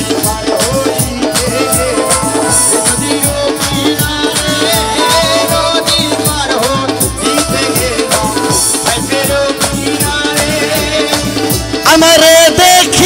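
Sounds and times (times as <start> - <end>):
harmonium melody: 0.0 - 13.0
tabla and dholak rhythm: 0.0 - 13.0.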